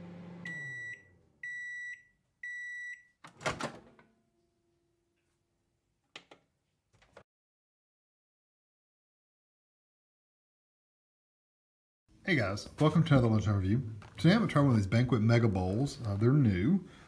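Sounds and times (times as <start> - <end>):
microwave running hum: 0.0 - 1.1
long microwave beeps: 0.4 - 3.2.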